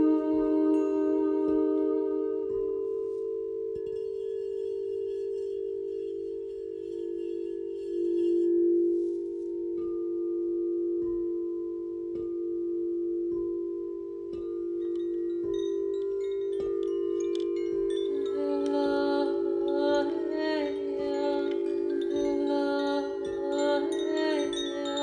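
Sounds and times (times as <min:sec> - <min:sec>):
low sustained ringing tone: 0:00.0 - 0:25.0
soft strikes with ringing notes: 0:00.0 - 0:25.0
high shimmer: 0:14.8 - 0:25.0.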